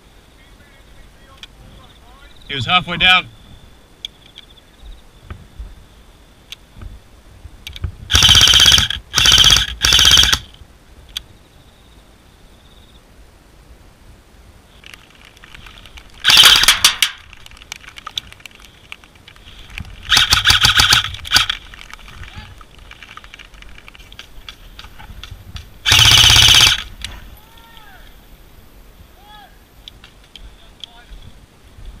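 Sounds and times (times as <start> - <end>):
airsoft rifle full auto bursts: 8.1 - 10.5, 16.2 - 17.0, 20.1 - 21.6, 25.8 - 26.9.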